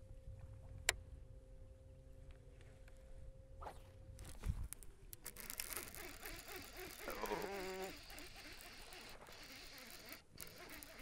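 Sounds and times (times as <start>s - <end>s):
fishing reel ticking and buzzing: 5.1s - 11.0s.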